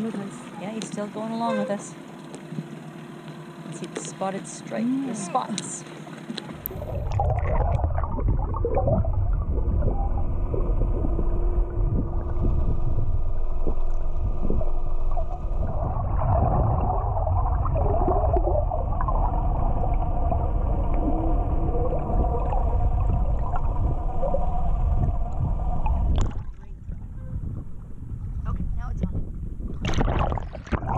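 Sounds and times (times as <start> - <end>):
boat motor humming underwater: 0.0 - 30.9
water gurgling: 3.7 - 28.6, 29.7 - 30.9
heavy low underwater rumble: 6.4 - 30.9.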